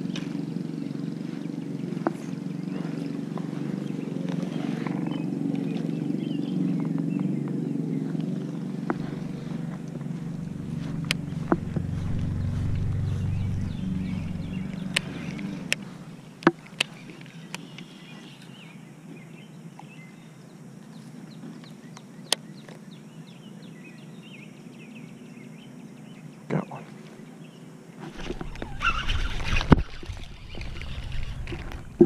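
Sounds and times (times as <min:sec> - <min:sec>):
rumbling handling noise: 0:00.0 - 0:17.6, 0:28.0 - 0:32.0
birds chirping: 0:00.0 - 0:32.0
sharp clicks: 0:10.6 - 0:16.9.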